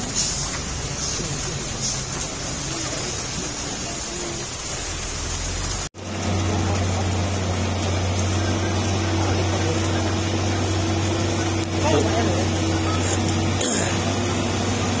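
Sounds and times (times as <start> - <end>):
truck diesel engines labouring: 0.0 - 15.0
low engine drone: 4.6 - 15.0.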